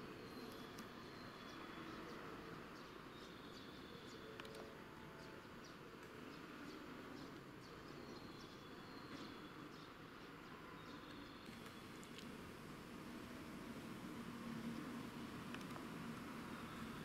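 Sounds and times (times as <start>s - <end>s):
small birds chirping: 0.0s - 12.5s, 13.4s - 17.0s
faint steady hiss: 9.4s - 17.0s.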